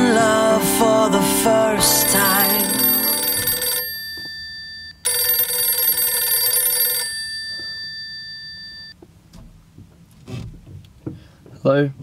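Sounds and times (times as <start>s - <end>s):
telephone bell ringing: 1.8s - 9.0s.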